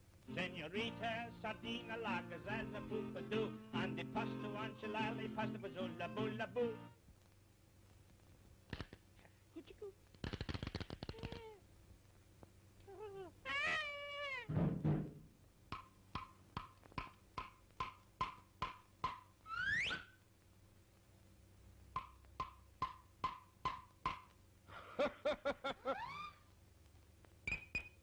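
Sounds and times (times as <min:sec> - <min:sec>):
low thud: 0:14.5 - 0:15.3
wood block taps: 0:15.7 - 0:19.3, 0:22.0 - 0:24.4.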